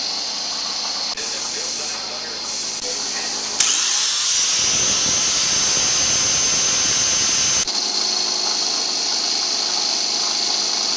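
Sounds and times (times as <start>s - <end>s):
electric grinder whining: 3.4s - 7.7s.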